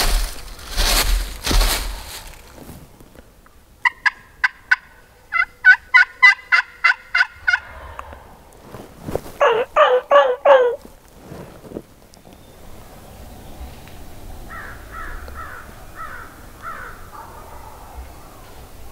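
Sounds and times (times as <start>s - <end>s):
turkeys calling: 3.8s - 8.2s, 9.4s - 10.9s.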